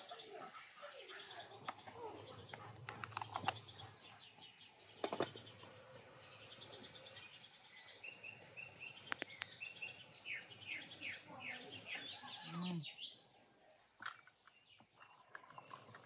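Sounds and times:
birds chirping: 0.0s - 16.0s
lid clinking on glass teapot: 5.0s - 5.4s
teapot clinking on samovar: 5.0s - 5.5s, 14.0s - 16.0s.

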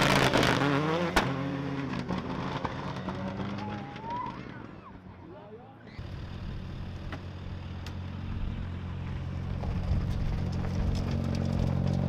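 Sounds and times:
car engine running: 6.0s - 12.0s.

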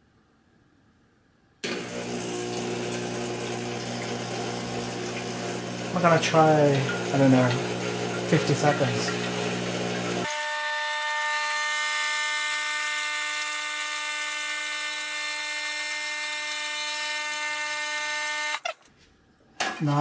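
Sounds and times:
espresso machine pump whine: 1.6s - 18.7s
water flowing into metal bowl: 1.9s - 10.3s.

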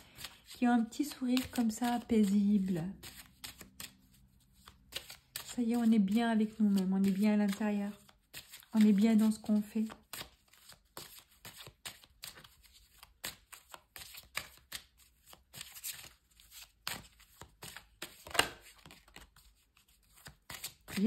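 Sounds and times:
cards being shuffled: 0.0s - 21.0s.

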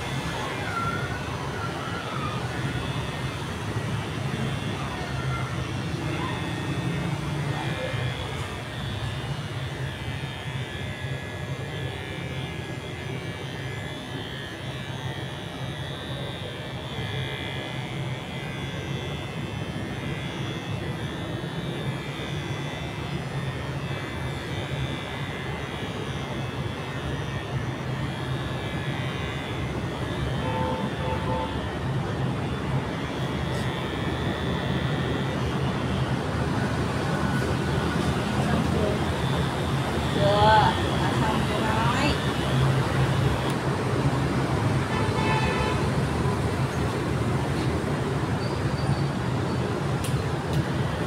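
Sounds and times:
hair clippers buzzing: 0.0s - 51.0s.

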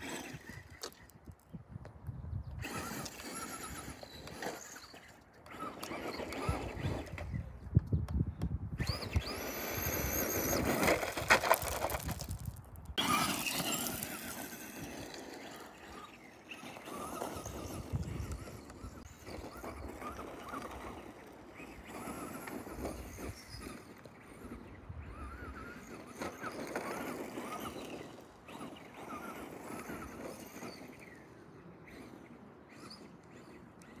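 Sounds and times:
rc truck motor whine: 0.0s - 1.6s, 2.4s - 34.0s
tyres spraying gravel: 8.9s - 18.5s.

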